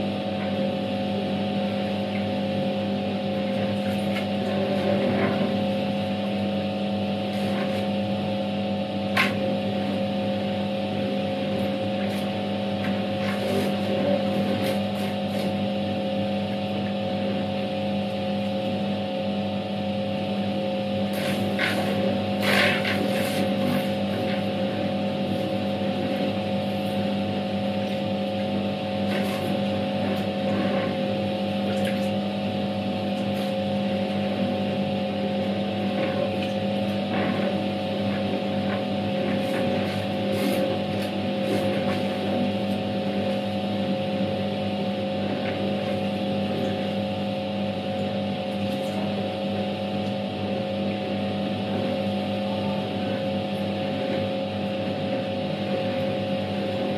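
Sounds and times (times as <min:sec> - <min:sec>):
washing machine motor hum: 0:00.0 - 0:56.9
water and clothes churning: 0:21.1 - 0:43.9.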